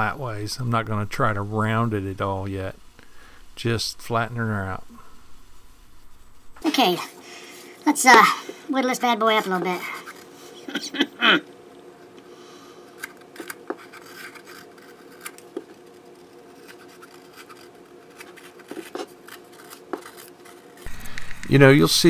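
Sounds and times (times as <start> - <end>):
knife scraping wood: 12.9 - 21.1.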